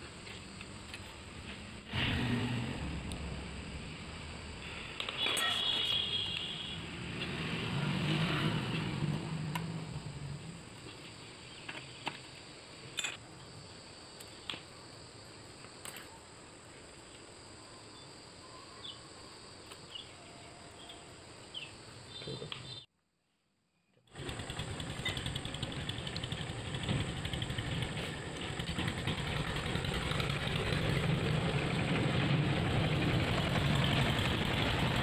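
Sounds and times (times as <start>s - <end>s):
low drone: 24.3s - 35.0s.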